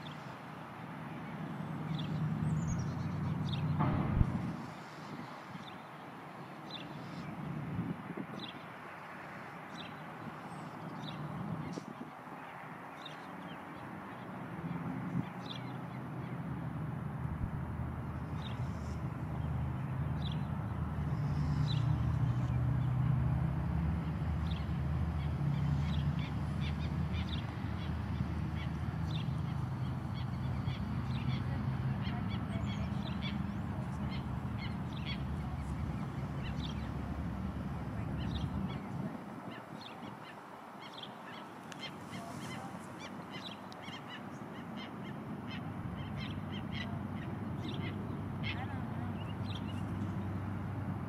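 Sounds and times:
steady low rumble: 3.7s - 4.9s.

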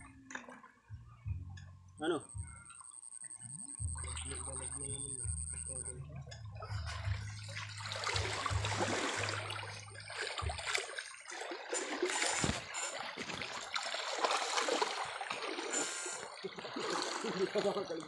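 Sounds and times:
low hum: 0.0s - 13.1s
water splashing from wading: 3.8s - 6.0s, 6.6s - 18.0s.

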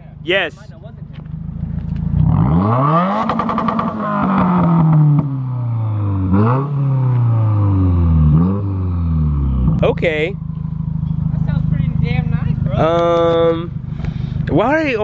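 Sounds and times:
car engine revving: 0.8s - 15.0s.

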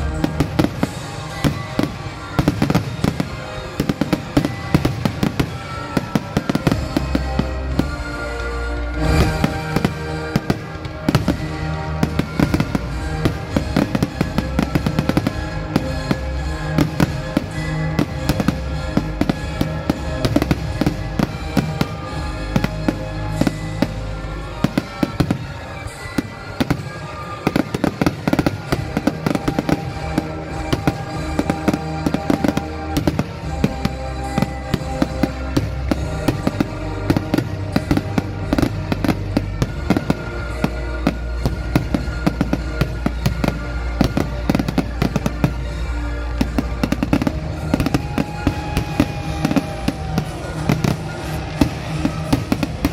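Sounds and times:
fireworks bangs and crackles: 0.0s - 52.9s
song with steady beat: 6.2s - 52.9s.

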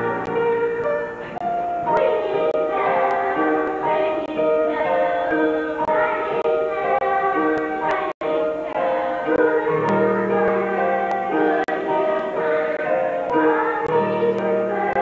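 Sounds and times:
children's choir singing: 0.0s - 15.0s.

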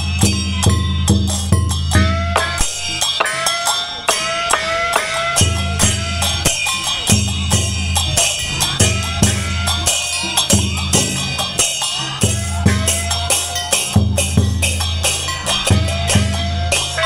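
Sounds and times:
sharp percussion hits: 0.0s - 17.0s.

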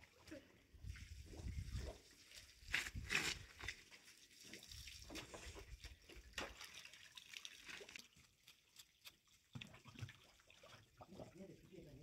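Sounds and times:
stone scraping wet ground: 1.4s - 6.6s.

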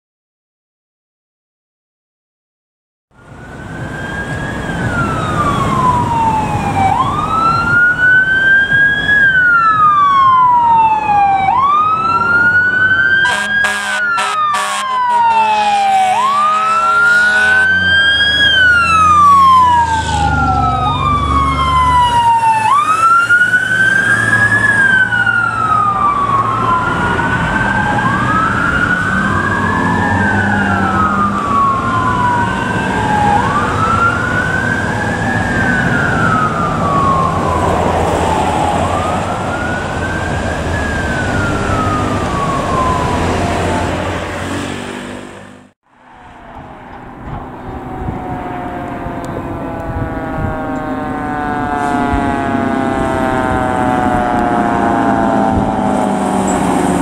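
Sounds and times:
fire engine sirens wailing: 3.1s - 57.0s
low rumble of trucks: 3.1s - 57.0s
air horn blasts: 13.2s - 17.9s, 49.2s - 56.2s.

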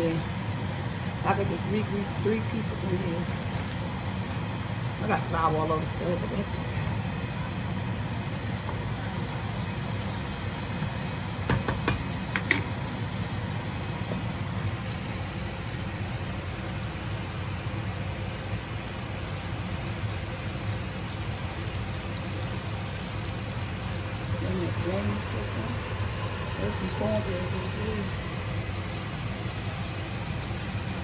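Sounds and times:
fish sizzling in hot oil: 8.0s - 31.0s.

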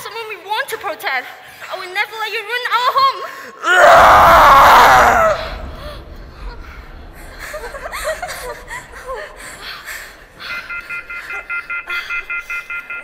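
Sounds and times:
people shouting: 3.7s - 5.8s
pulsing electronic beeping: 10.2s - 13.0s.

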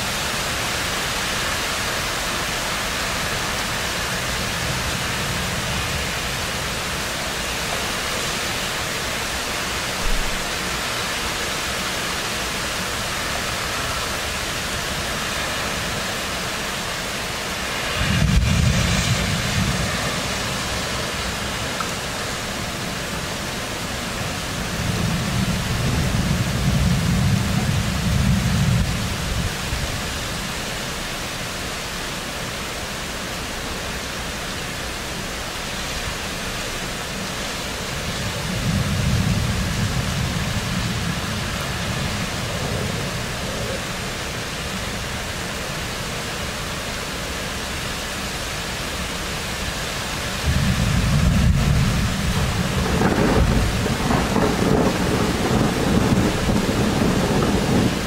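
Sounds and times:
heavy rain hissing: 0.0s - 58.0s
thunder rumbling: 17.2s - 30.2s, 38.1s - 44.2s, 50.4s - 58.0s.

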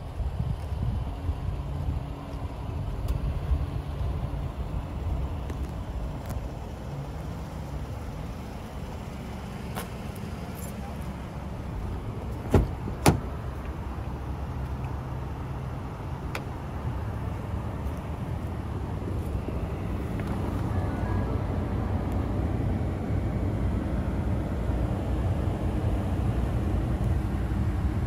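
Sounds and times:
low vehicle rumble: 0.0s - 28.0s
car door unlatching clicks: 12.3s - 13.8s.

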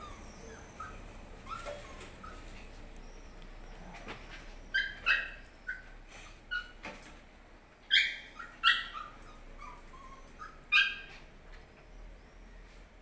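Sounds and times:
animal yipping: 0.0s - 5.9s, 7.9s - 11.2s.

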